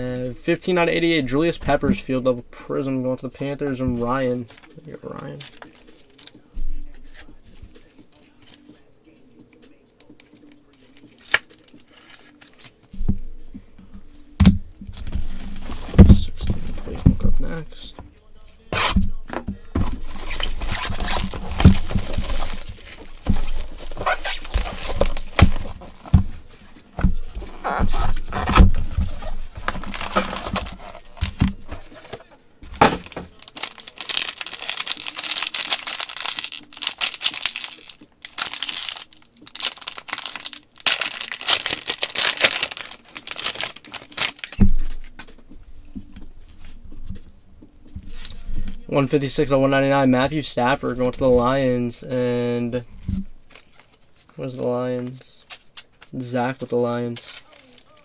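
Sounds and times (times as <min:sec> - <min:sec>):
foil wrapper crinkling and tearing: 0:20.0 - 0:26.2, 0:27.4 - 0:32.2, 0:32.9 - 0:44.6, 0:56.5 - 0:58.0.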